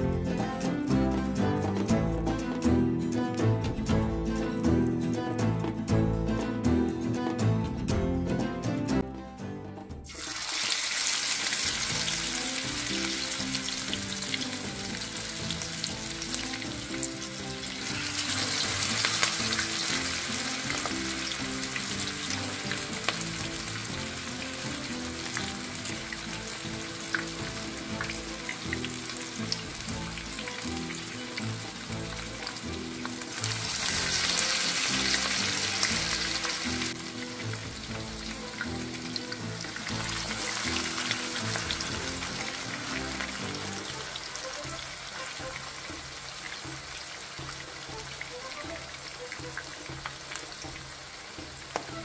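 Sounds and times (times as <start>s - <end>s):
patties sizzling in oil: 10.0s - 52.0s.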